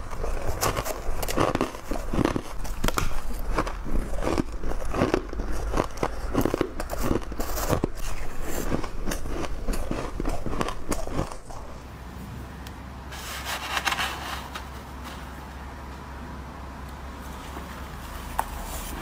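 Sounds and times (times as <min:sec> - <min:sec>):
crunching frost being chewed: 0:00.0 - 0:11.9.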